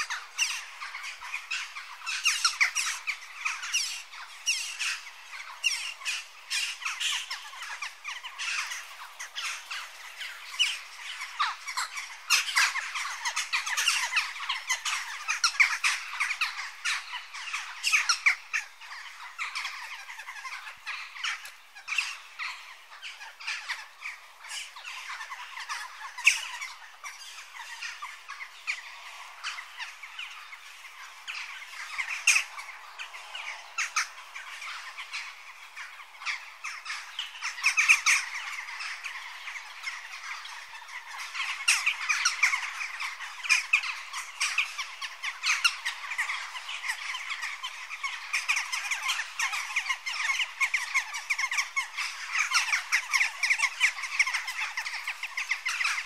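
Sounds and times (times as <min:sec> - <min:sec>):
jackdaws calling: 0:00.0 - 0:56.0.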